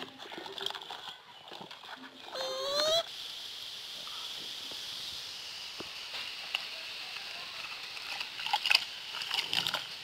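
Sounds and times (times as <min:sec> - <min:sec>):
water sloshing in a plastic bucket: 0:00.0 - 0:02.4
steady high hiss: 0:02.3 - 0:10.0.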